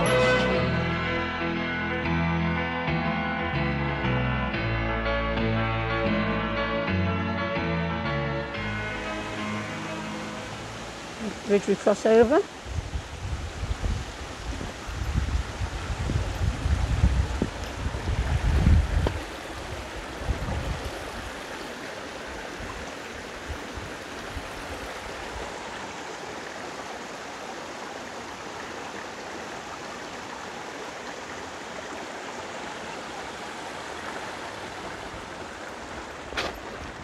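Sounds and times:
stream running over stones: 8.6s - 37.0s.

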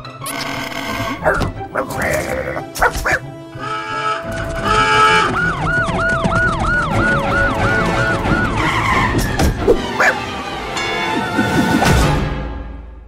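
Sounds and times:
siren-like wailing tone: 4.6s - 9.1s.

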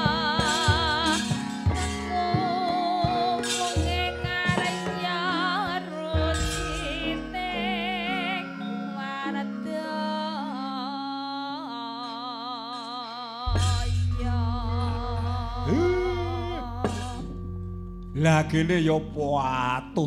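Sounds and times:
high singing voice: 0.0s - 17.4s
metallophone tones: 0.0s - 20.0s
low drum strokes: 13.5s - 19.9s.

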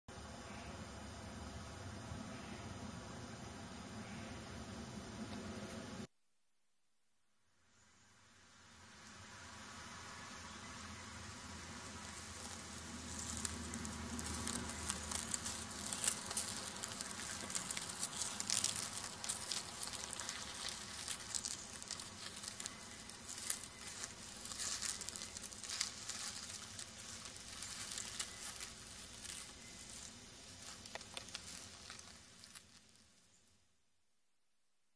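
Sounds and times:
dry grass and leaves rustling: 8.8s - 33.4s.

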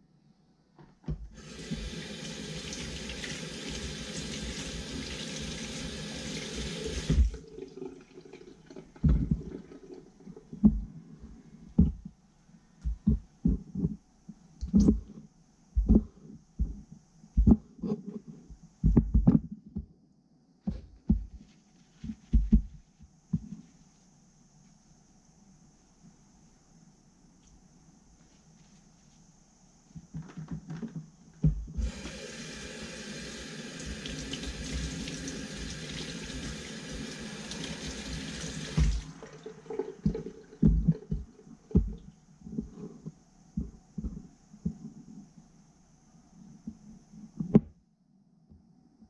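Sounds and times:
tap running into sink: 33.8s - 39.2s.

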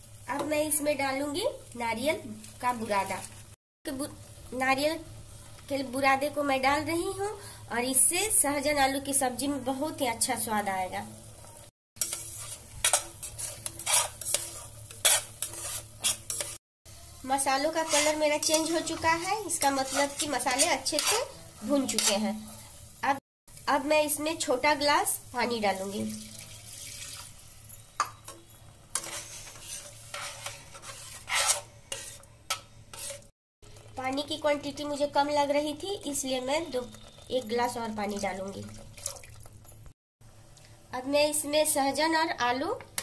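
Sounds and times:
faint sizzle of frying paste: 0.0s - 43.0s
spoon scraping steel pot: 12.0s - 16.6s, 17.8s - 22.2s, 27.8s - 33.3s.

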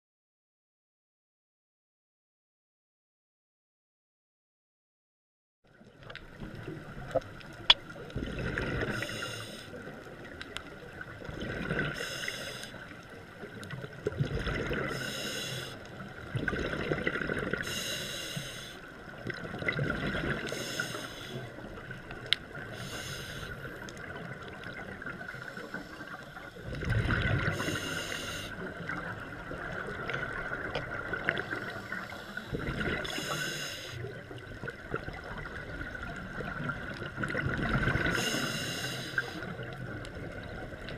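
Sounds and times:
exhaled bubbles rushing: 6.4s - 9.0s, 11.1s - 12.0s, 13.9s - 14.9s, 16.2s - 17.7s, 19.2s - 20.5s, 26.6s - 27.8s, 32.5s - 33.2s, 34.4s - 38.2s
scuba regulator breathing hiss: 8.8s - 9.9s, 11.9s - 12.8s, 14.8s - 15.8s, 17.6s - 18.9s, 20.4s - 21.5s, 22.7s - 23.9s, 25.4s - 26.6s, 27.4s - 28.6s, 31.4s - 34.1s, 38.0s - 39.5s.

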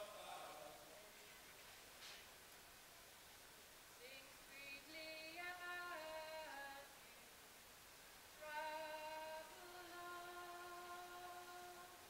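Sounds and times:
person singing slow melody: 4.0s - 7.4s, 8.4s - 12.0s.

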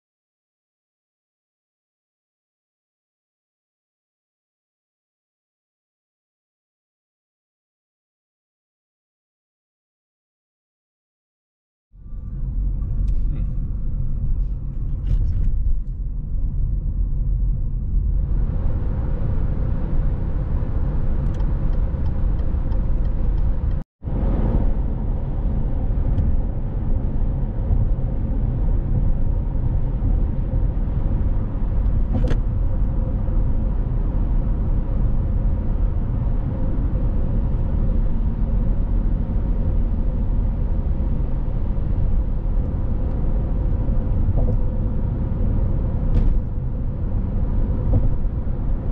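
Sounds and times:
car cabin road noise: 12.0s - 48.9s.

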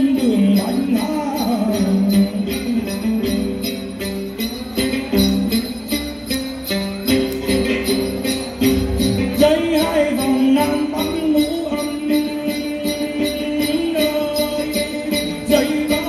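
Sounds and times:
man singing: 0.0s - 3.8s, 9.1s - 16.0s
plucked gourd lute: 0.0s - 16.0s.

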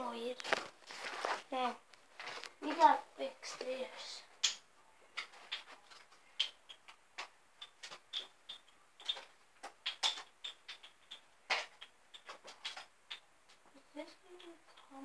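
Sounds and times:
small hard objects clicking: 4.4s - 4.6s, 5.2s - 13.6s.

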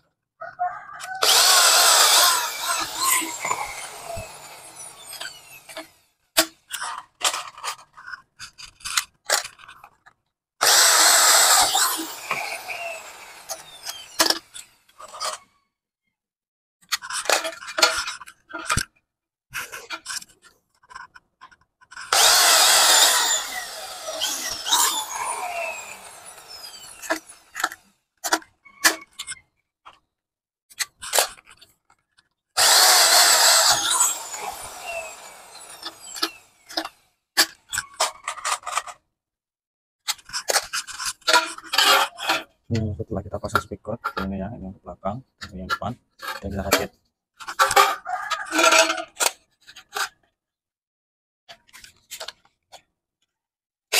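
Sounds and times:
electric drill boring metal: 1.0s - 6.0s, 10.6s - 14.9s, 22.1s - 27.8s, 32.6s - 37.0s.

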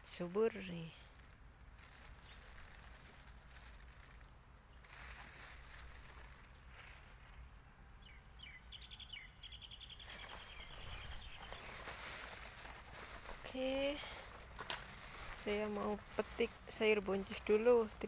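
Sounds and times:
faint background noise: 0.0s - 18.0s
bird calling and trilling: 8.0s - 12.0s.

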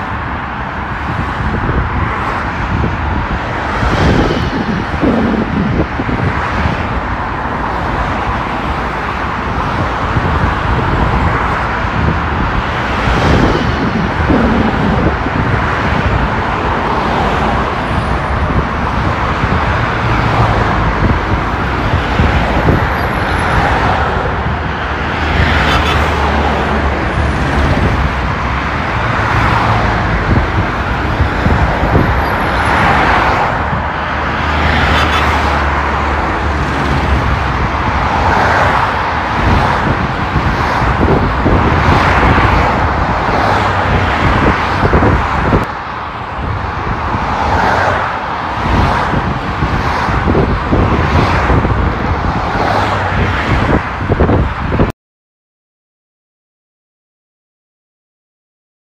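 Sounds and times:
road traffic: 0.0s - 54.9s
vehicles passing: 0.0s - 54.9s.

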